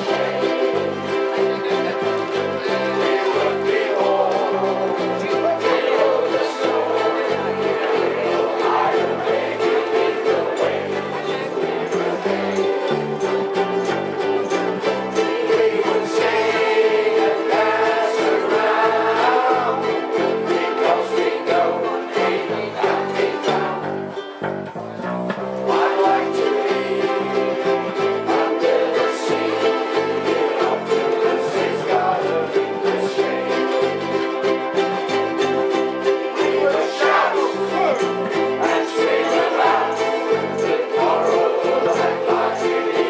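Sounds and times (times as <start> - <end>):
group singing: 0.0 - 24.3, 25.4 - 43.0
ukuleles and guitars strumming: 0.0 - 43.0
bass line: 22.7 - 27.8.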